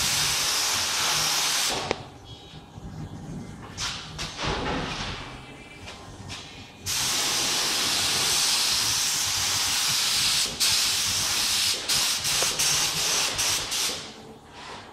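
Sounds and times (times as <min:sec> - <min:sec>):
spray gun hissing: 0:00.0 - 0:01.8, 0:06.9 - 0:14.1.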